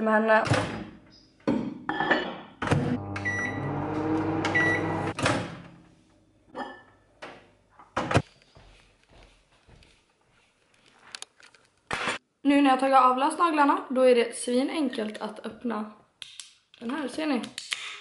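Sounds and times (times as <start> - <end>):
microwave oven humming: 3.0 - 5.2.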